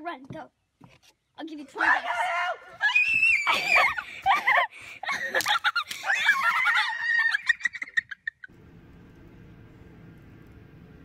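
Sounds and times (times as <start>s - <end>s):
children shrieking and shouting: 1.8s - 5.2s, 6.0s - 7.7s.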